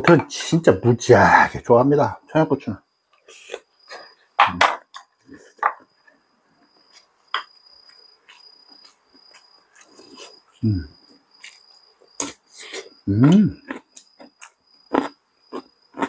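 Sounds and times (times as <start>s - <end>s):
chewing: 7.8s - 10.6s, 11.4s - 16.0s
low vocal grunts: 13.1s - 13.6s.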